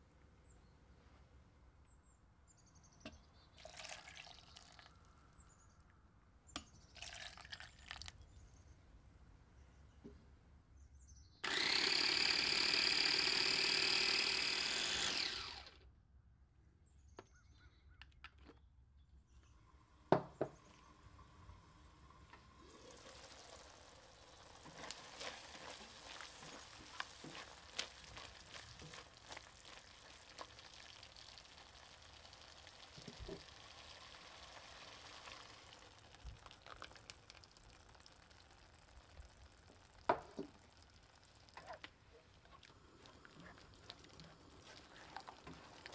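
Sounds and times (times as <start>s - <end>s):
food processor motor running: 11.4s - 15.8s
faint sizzling: 19.6s - 45.9s.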